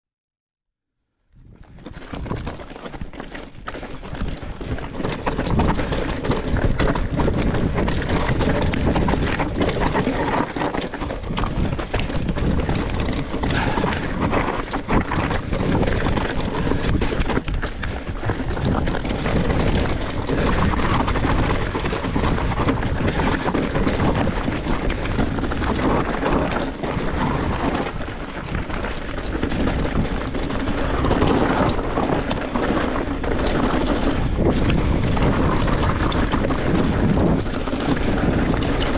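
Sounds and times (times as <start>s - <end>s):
wind rushing over microphone: 1.3s - 38.9s
bike rattling: 1.4s - 38.9s
tyres crunching over gravel: 1.6s - 38.9s.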